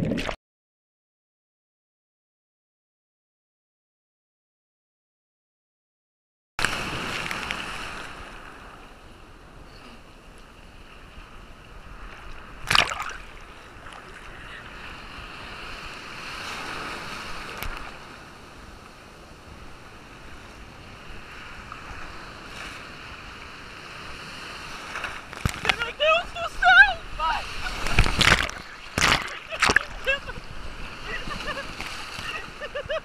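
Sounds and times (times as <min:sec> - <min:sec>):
breaking surf: 0:06.6 - 0:08.8, 0:21.4 - 0:33.0
loud water splash: 0:12.6 - 0:13.4, 0:27.6 - 0:30.1.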